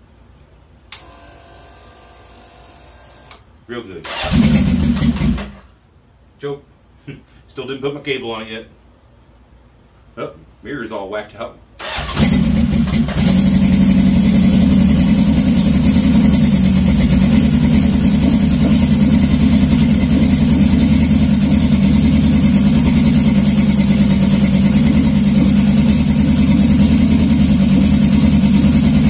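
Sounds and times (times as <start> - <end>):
motorcycle engine idling: 12.2 - 29.0.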